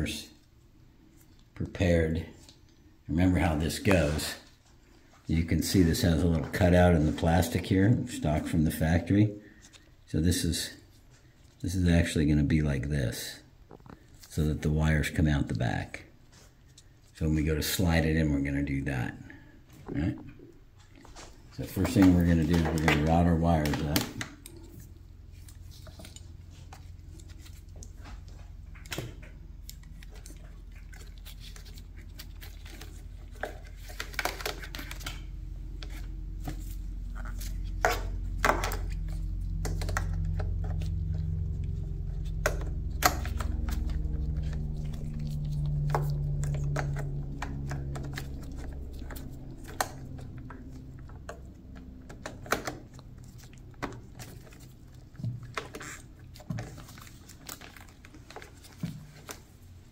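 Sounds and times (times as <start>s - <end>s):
low rumble: 24.5s - 58.8s.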